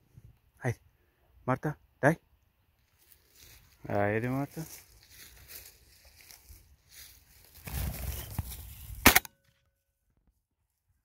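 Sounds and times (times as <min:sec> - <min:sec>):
footsteps in dry grass: 0:02.7 - 0:09.0.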